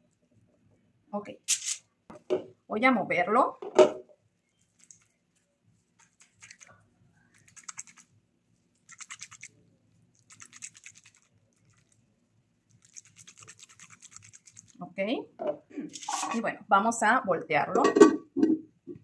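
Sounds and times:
metal mold scraping on stone: 15.9 - 16.4.

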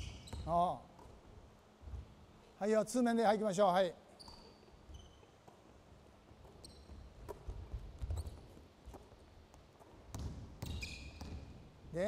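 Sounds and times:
sneaker squeaks: 0.0 - 1.3, 4.0 - 11.6
basketball dribbling on hardwood: 6.9 - 11.5.

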